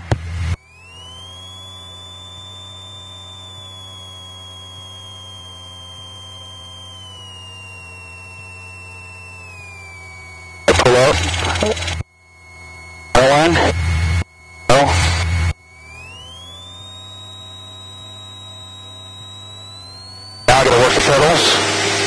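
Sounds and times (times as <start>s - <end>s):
thin high whine falling in pitch: 0.0s - 22.0s
loud burst of intercom noise: 10.7s - 12.0s, 13.2s - 13.8s, 14.7s - 15.3s, 20.5s - 21.9s.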